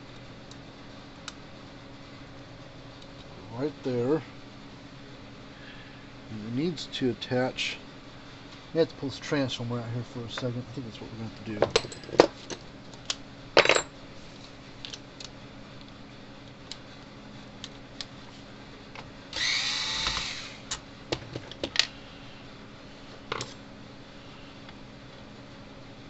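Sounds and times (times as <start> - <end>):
brief whir: 19.3 - 20.6.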